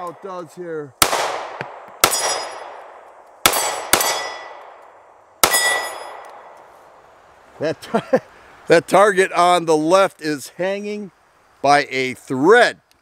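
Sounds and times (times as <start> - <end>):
pistol shots: 1.0 - 6.6
steel targets clanging: 2.0 - 2.7, 3.5 - 4.6, 5.4 - 6.3.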